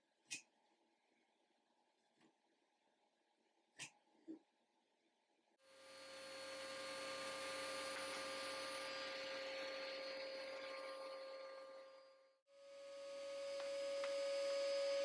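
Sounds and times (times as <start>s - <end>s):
table saw motor whining: 5.7s - 15.0s.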